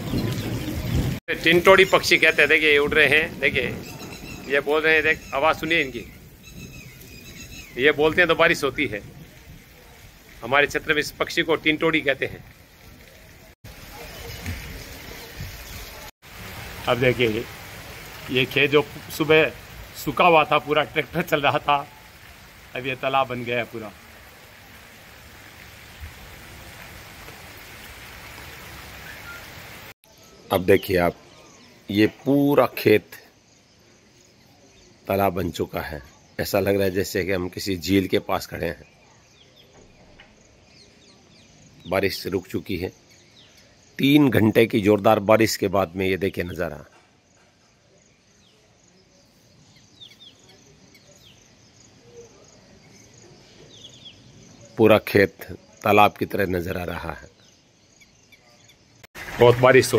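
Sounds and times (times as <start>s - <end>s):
heavy rain on flooded field: 0.0s - 30.0s, 59.0s - 59.9s
bird chirps: 3.7s - 8.8s, 46.9s - 56.1s, 56.7s - 59.1s
insects chirping trill: 56.9s - 59.1s.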